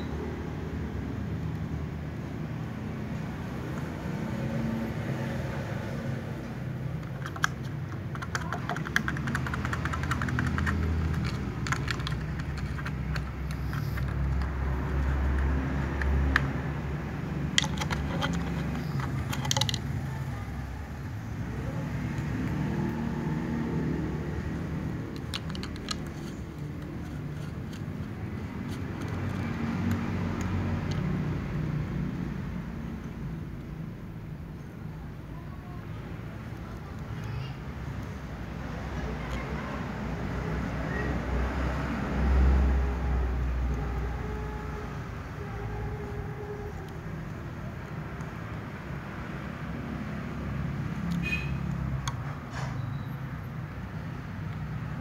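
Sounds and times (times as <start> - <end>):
distant traffic rumble: 0.0 - 55.0
cats eating from plastic container: 6.9 - 16.6, 17.2 - 20.3, 25.0 - 30.4.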